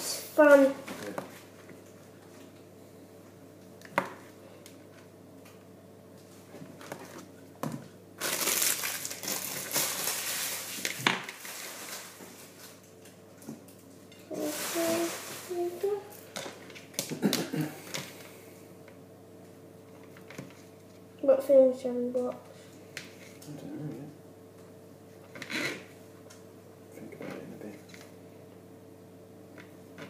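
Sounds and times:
crinkling and rustling: 6.2s - 17.1s.

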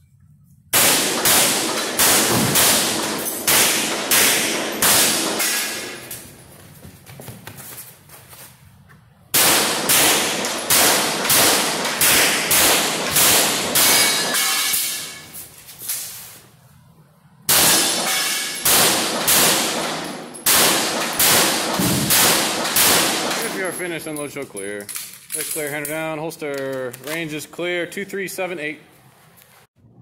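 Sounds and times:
pistol shots echoing indoors: 0.7s - 6.4s, 9.3s - 15.3s, 17.4s - 23.8s.

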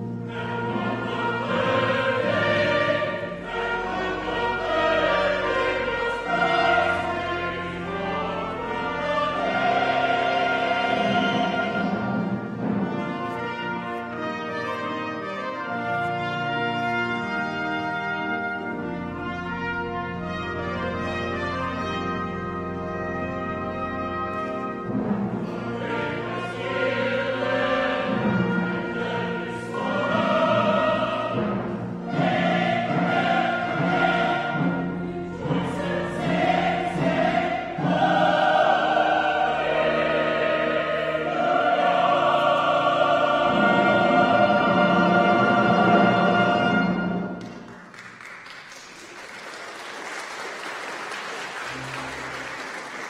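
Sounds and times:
choir singing: 0.0s - 47.7s
brass and timpani: 0.0s - 47.8s
applause: 47.4s - 53.0s.

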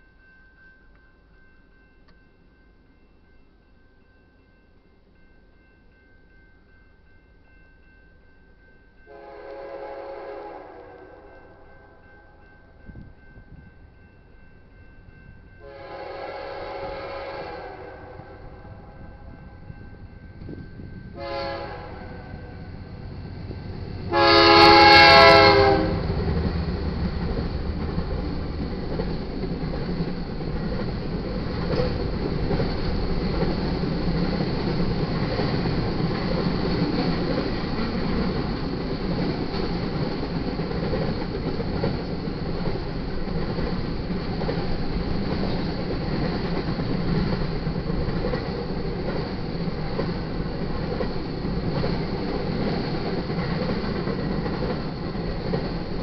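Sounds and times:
freight train passing: 0.0s - 56.0s
train air horn chord: 9.1s - 12.4s, 15.6s - 19.3s, 21.1s - 22.6s, 24.1s - 26.1s
wheels clattering on rails: 22.2s - 56.0s.

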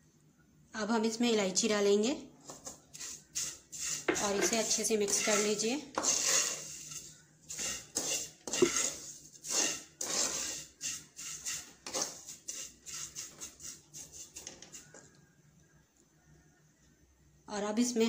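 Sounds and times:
wooden spatula scraping a pan: 2.5s - 15.2s.

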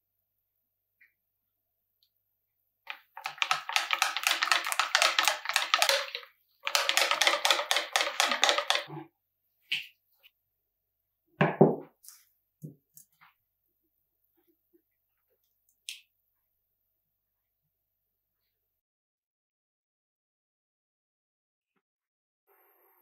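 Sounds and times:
whisk beating batter in bowl: 2.9s - 9.0s
glass bowl knocking on wood: 11.4s - 11.8s.

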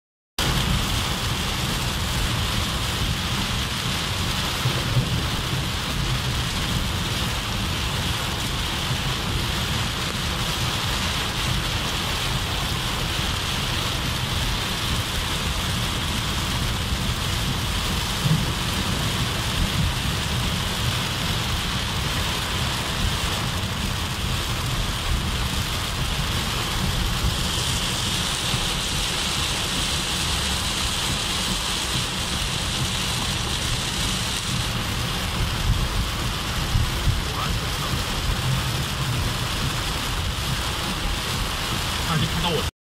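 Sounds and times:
heavy rain on car roof: 0.4s - 42.7s
steady low rumble: 11.4s - 42.6s.

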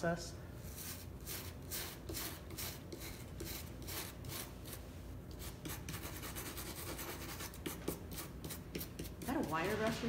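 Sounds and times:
wire brush scrubbing: 5.4s - 10.0s.

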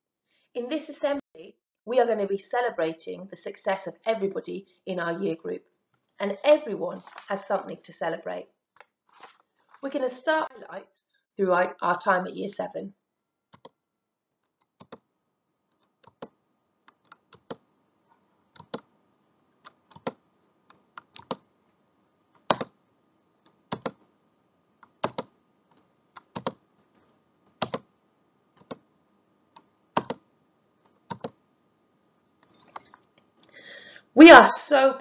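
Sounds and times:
computer keyboard clicks: 13.6s - 13.8s, 14.5s - 15.0s, 15.7s - 17.6s, 18.6s - 18.9s, 19.6s - 20.2s, 21.0s - 21.4s, 22.4s - 22.7s, 23.7s - 24.0s, 24.8s - 26.6s, 27.6s - 27.9s, 28.6s - 28.8s, 29.6s - 30.2s, 31.1s - 31.4s.

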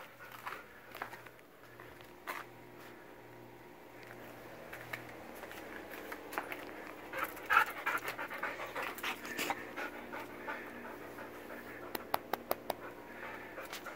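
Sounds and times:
dog panting: 0.0s - 1.2s, 6.6s - 13.9s.

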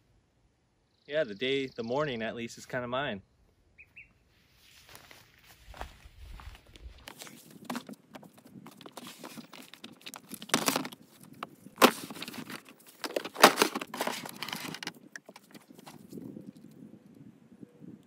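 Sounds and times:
straps rustling: 4.6s - 16.2s
plastic cases knocking and clunking: 7.1s - 16.0s
plastic cases scraping: 7.1s - 16.1s.

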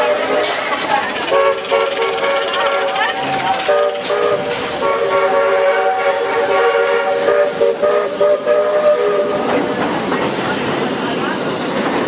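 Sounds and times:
steam train chime whistle: 0.0s - 9.5s.

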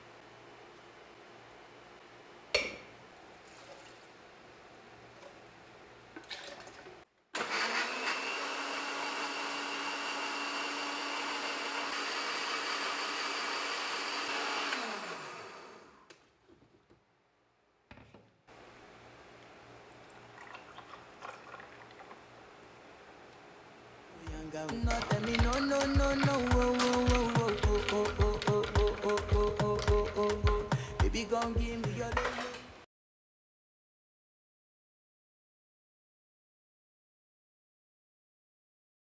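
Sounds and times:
blender motor running: 7.4s - 16.1s, 24.8s - 30.4s.

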